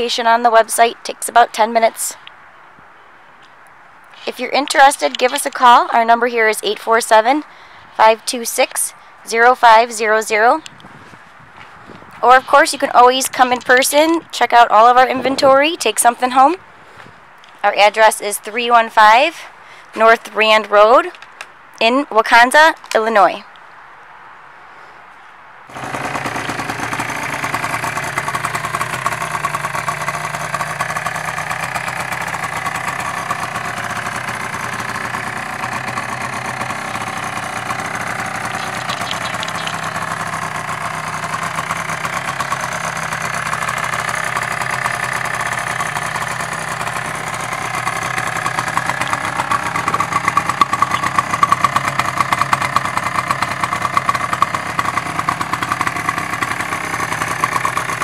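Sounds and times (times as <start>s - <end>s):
small engine idling: 25.7s - 58.0s.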